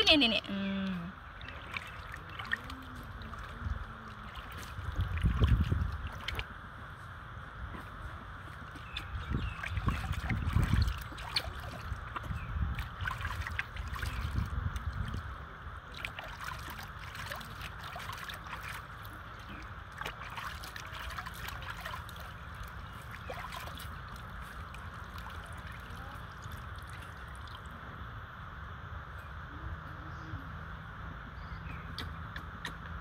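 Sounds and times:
water trickling and dripping: 0.0 - 6.6, 8.4 - 27.8
water splashing in plastic basin: 1.2 - 6.6, 8.6 - 27.7.

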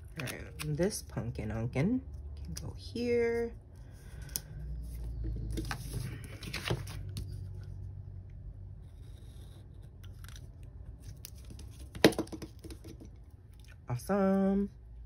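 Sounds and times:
paper rustling and scraping: 4.8 - 7.6.

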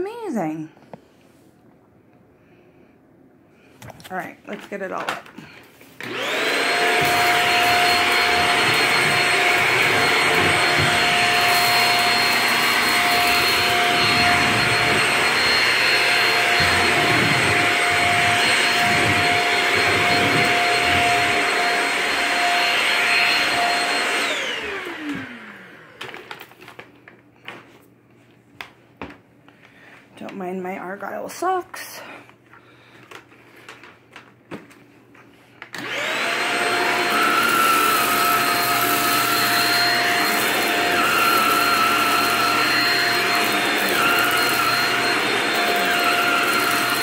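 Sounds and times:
vacuum cleaner whining: 4.0 - 27.7, 35.6 - 47.0.

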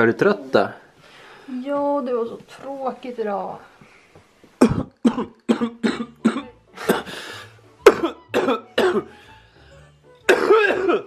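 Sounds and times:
woman coughing: 4.6 - 7.1, 7.8 - 9.1, 10.3 - 11.0
rasping breath: 6.8 - 7.6.

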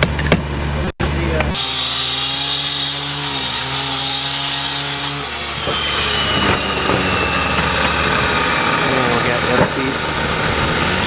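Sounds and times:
outdoor noise: 0.0 - 11.0
motor humming: 5.1 - 11.0.

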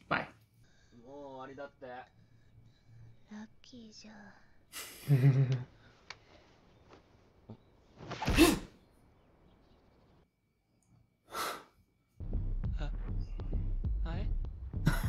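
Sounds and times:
person sneezing: 8.2 - 8.8
low throbbing: 12.2 - 15.0.

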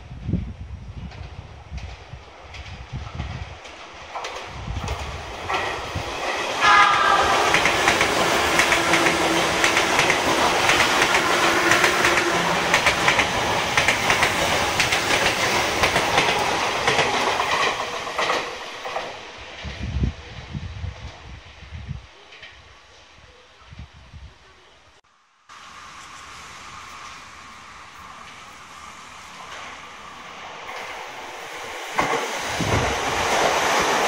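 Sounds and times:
train wheels rushing on rail: 0.0 - 22.7, 25.5 - 34.0
wheels clicking over rail joints: 1.1 - 19.2
train horn blast: 6.6 - 10.0, 11.1 - 12.8.

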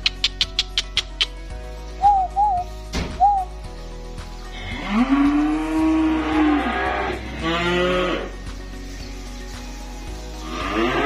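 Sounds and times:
short high chirps: 2.0 - 3.5
calf mooing: 4.6 - 8.3.

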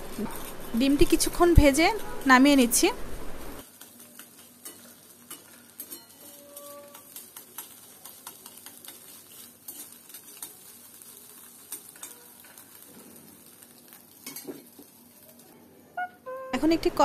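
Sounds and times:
metal spatula scraping pan: 0.0 - 2.4, 3.8 - 10.7
egg sizzling in oil: 0.0 - 15.8.

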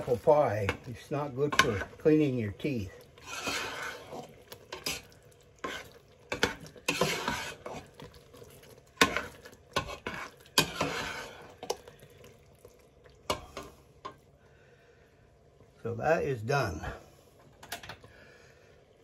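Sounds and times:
metal spoon scraping pot: 2.6 - 8.0, 9.0 - 11.8.

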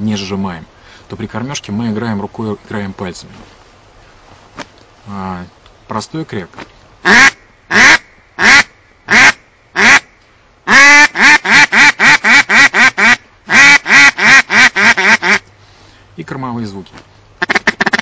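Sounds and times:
duck call quacking: 7.0 - 10.1, 10.7 - 15.4, 17.4 - 18.0.

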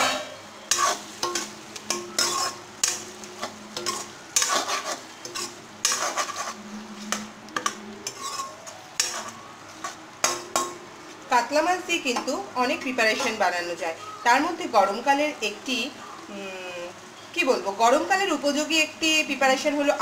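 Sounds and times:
spatula scraping metal pan: 0.0 - 10.7.

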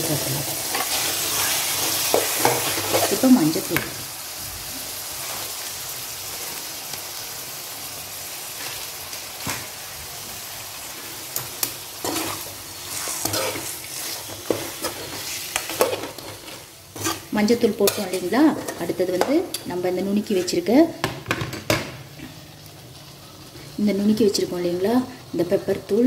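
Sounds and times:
food sizzling in oil: 0.0 - 26.0
metal spatula scraping pan: 11.4 - 19.7.

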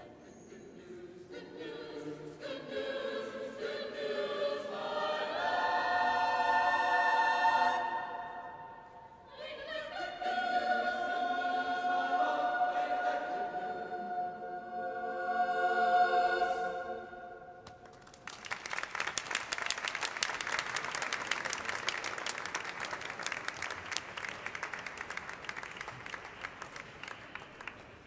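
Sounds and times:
choir singing: 0.0 - 17.6
audience applause: 17.9 - 28.0.

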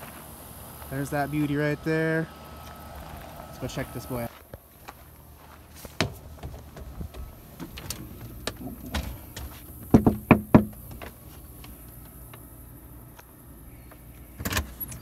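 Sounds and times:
footsteps on wooden boards: 4.3 - 11.8
knocking on a door: 9.8 - 10.8.

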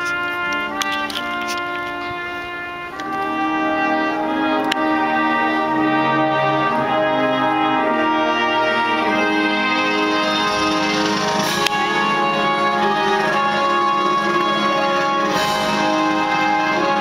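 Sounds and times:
brass ensemble playing held chords: 0.0 - 17.0.

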